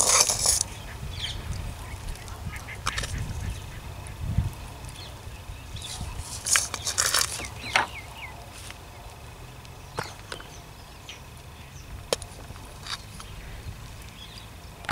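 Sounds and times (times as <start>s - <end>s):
spoon scraping a pot: 0.0s - 0.7s.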